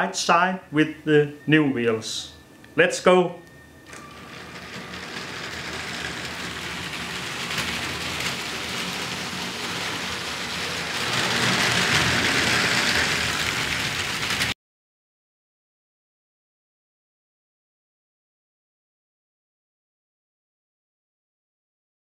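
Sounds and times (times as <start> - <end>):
toy train wheels rattling on track: 4.0 - 14.6.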